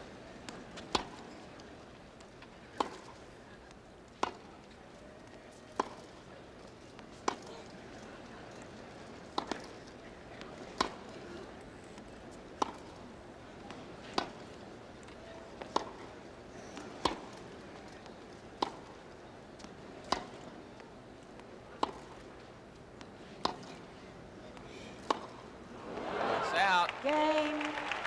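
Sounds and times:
tennis ball hits: 5.8s - 6.1s, 9.3s - 9.8s, 12.6s - 13.0s, 13.7s - 14.4s, 15.6s - 16.1s, 16.8s - 17.4s, 18.5s - 19.0s, 20.0s - 20.6s, 21.8s - 22.2s, 23.0s - 23.9s, 24.6s - 25.5s.

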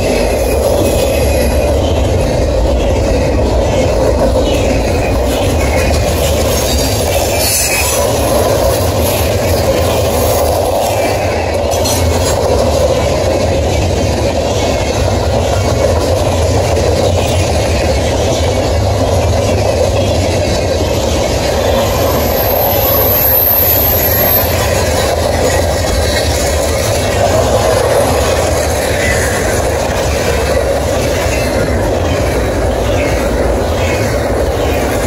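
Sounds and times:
train wheels rumbling on rails: 0.0s - 35.0s
high wheel squeal: 4.5s - 12.1s, 21.0s - 26.9s.

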